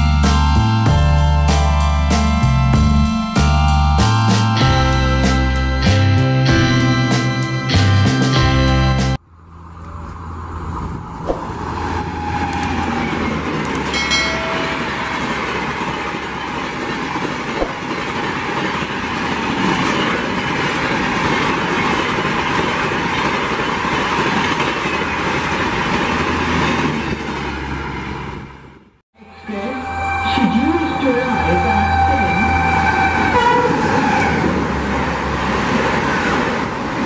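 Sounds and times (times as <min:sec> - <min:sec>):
train passing at speed: 0:09.5 - 0:37.0
train horn: 0:29.2 - 0:34.7.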